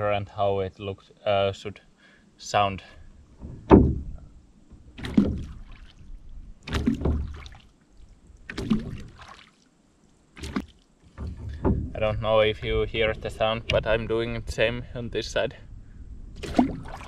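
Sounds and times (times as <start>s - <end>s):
oar blade plopping into water: 5.0s - 7.7s, 8.4s - 9.6s, 10.4s - 12.0s, 16.4s - 17.0s.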